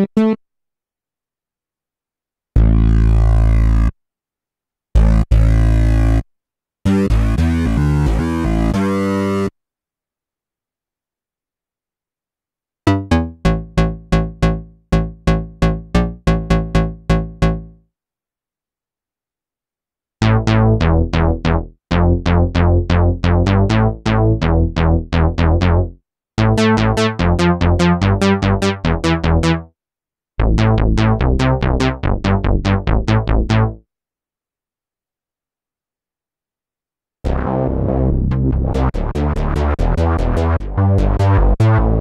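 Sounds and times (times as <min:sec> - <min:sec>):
plucky synth bass notes: 0:00.0 - 0:00.4, 0:02.6 - 0:03.9, 0:05.0 - 0:06.2, 0:06.9 - 0:09.5, 0:12.9 - 0:17.8, 0:20.2 - 0:29.7, 0:30.4 - 0:33.8, 0:37.3 - 0:42.0.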